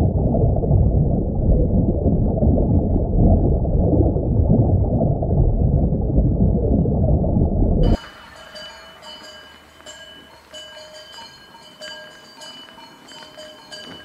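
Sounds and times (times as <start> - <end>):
loud low rumble: 0.0 - 8.2
cowbells ringing: 7.9 - 14.0.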